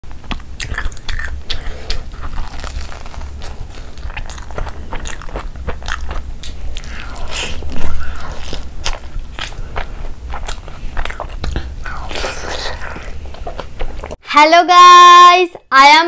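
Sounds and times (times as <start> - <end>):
chewing and eating mouth sounds: 0.1 - 14.2.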